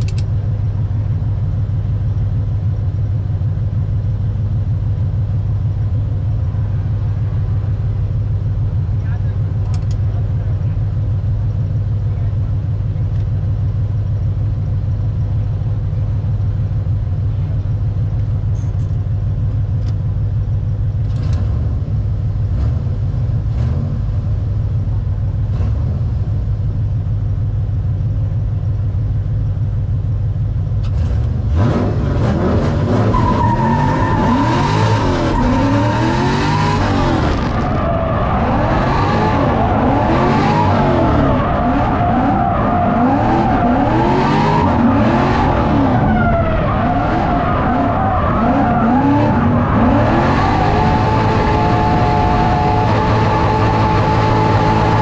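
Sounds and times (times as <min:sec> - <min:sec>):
car engine revving: 0:21.0 - 0:26.8, 0:30.8 - 0:55.0
tyre squeal: 0:33.0 - 0:55.0.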